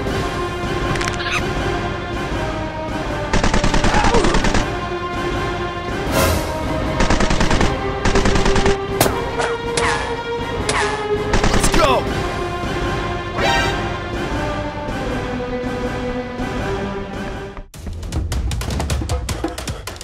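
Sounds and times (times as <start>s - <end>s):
background music with held tones: 0.0s - 17.7s
automatic gunfire bursts: 3.4s - 4.6s, 7.0s - 8.8s.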